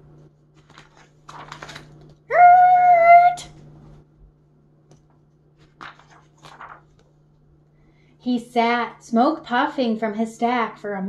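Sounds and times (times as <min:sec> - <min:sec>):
book pages rustling: 0:00.1 - 0:02.2, 0:04.9 - 0:07.5.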